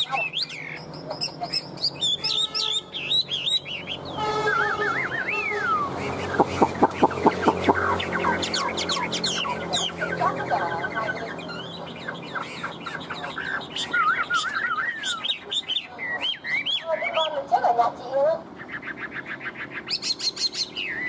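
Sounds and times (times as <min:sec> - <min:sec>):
bird singing: 0:00.0 - 0:21.0.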